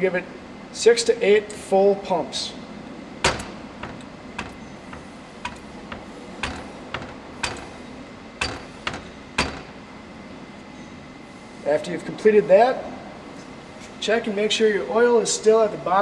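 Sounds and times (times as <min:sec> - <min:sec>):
bottle jack pump clicking: 0:03.2 - 0:09.8.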